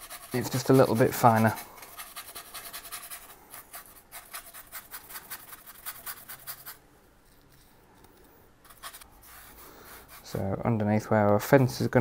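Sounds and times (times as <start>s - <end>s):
paintbrush scratching on foam: 0.0s - 6.8s, 8.7s - 10.6s.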